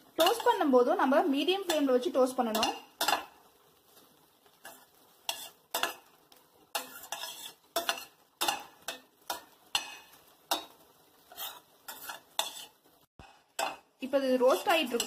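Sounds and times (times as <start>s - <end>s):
faint frying sizzle: 0.0s - 15.0s
metal spatula scraping a pan: 0.0s - 15.0s.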